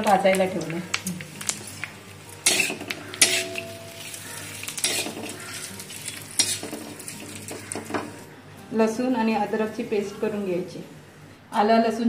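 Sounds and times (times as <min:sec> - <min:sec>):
coconut scraping on griddle: 0:01.3 - 0:08.2.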